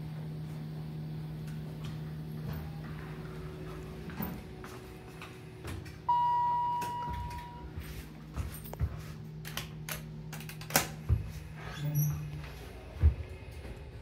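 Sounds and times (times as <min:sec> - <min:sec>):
steady low hum: 0:00.0 - 0:14.0
elevator chime ding: 0:06.0 - 0:08.0.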